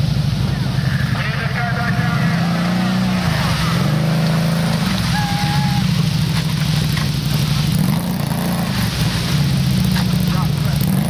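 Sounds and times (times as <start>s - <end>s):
off-road vehicle engine running: 0.0s - 11.0s.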